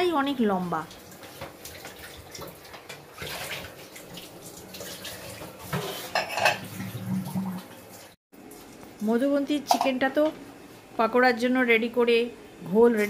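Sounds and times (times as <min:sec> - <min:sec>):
crockery and cutlery clinking: 0:05.8 - 0:06.7.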